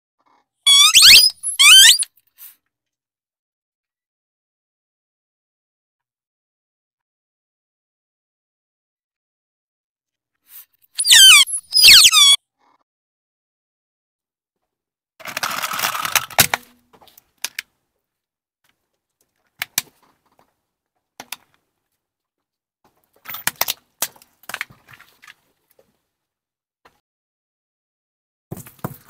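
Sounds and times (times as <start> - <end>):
plastic toys cracking under tyre: 15.2 - 16.7.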